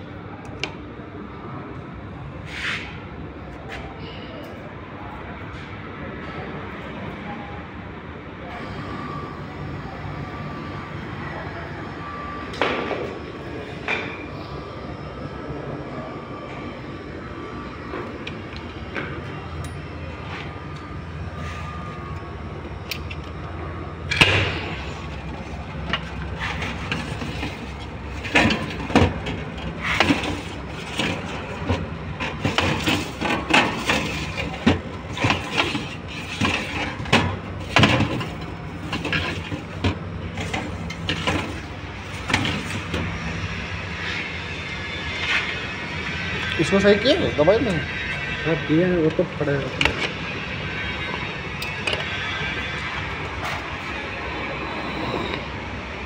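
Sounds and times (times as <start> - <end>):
freezer hum: 6.7 - 56.0
knocks and clatters of handling: 25.1 - 43.1.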